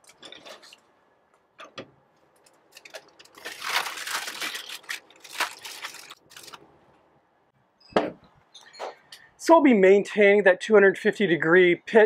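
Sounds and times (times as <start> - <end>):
aluminium foil crinkling: 2.4 - 6.7.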